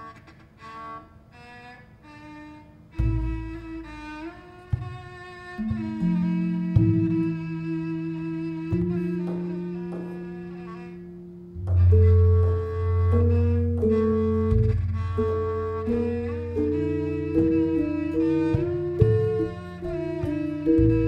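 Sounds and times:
gamelan metallophone ringing notes: 0:05.6 - 0:08.1, 0:08.7 - 0:21.0.

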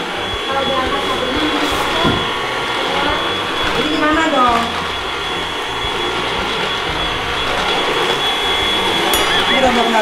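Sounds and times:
vacuum cleaner running: 0:00.0 - 0:10.0.

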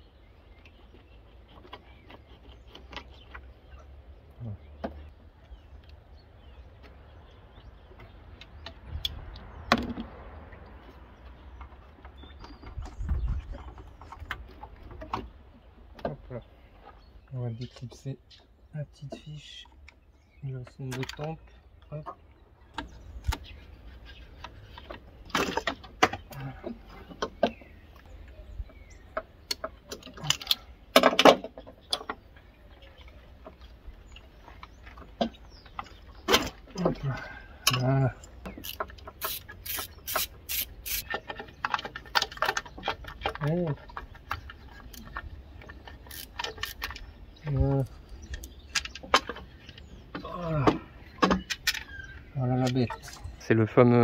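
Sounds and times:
clicks and knocks of hoses and fittings: 0:17.6 - 0:23.5, 0:29.1 - 0:32.3, 0:33.0 - 0:53.2.

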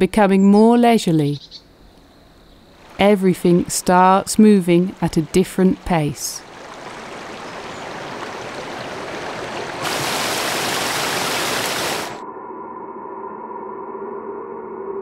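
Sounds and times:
waterfall splashing over rocks: 0:06.4 - 0:12.2.

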